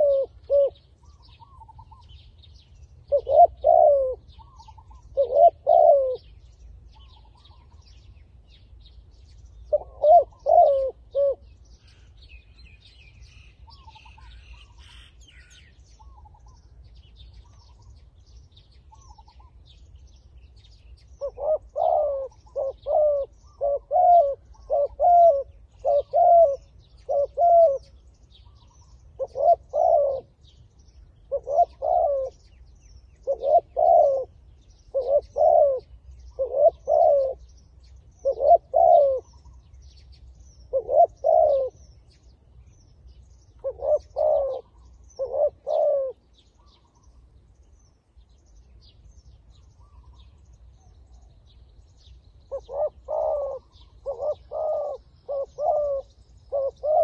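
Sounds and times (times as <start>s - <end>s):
dove cooing: 0.0s - 2.2s, 3.0s - 8.0s, 9.6s - 12.3s, 13.7s - 16.6s, 21.0s - 30.5s, 31.2s - 32.6s, 33.2s - 37.5s, 38.1s - 42.0s, 43.5s - 47.2s, 52.5s - 57.0s
small birds chirping: 0.0s - 57.0s.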